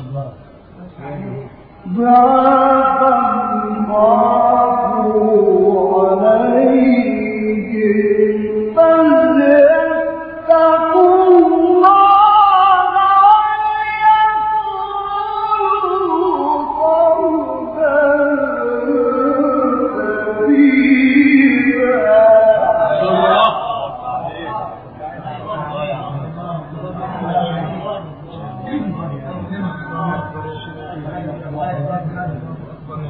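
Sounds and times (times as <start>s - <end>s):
man reciting melodically: 16.0s - 33.0s.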